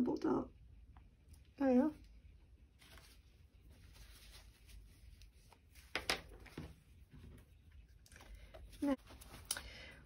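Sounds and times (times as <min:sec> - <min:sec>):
faint rustling: 0:02.7 - 0:09.8.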